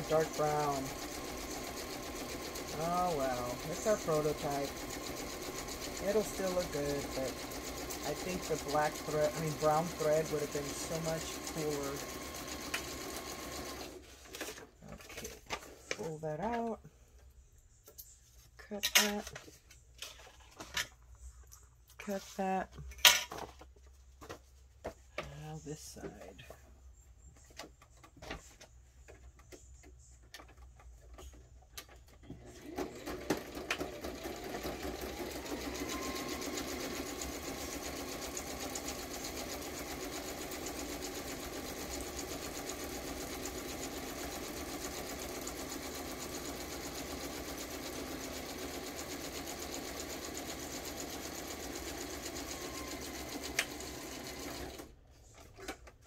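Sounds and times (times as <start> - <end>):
sewing machine stitching: 0.0 - 15.4, 32.2 - 55.0.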